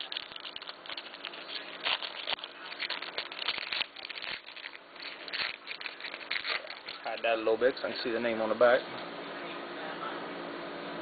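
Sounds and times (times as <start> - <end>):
plastic card sleeve crinkling: 0.0 - 8.4.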